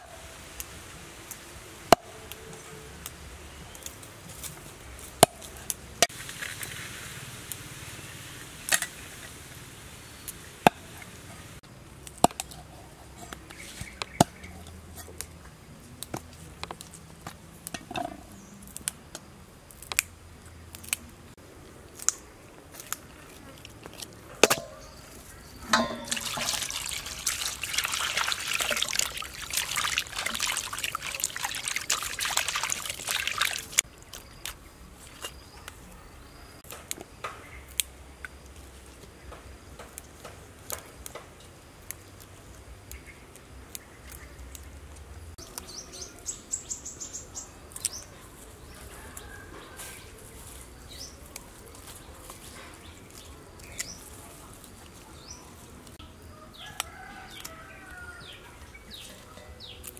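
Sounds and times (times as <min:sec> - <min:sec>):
stems snapping by hand: 0:18.6 - 0:21.1, 0:21.9 - 0:35.8, 0:36.6 - 0:45.7, 0:50.3 - 0:56.0
water pouring into metal basin: 0:25.6 - 0:33.8.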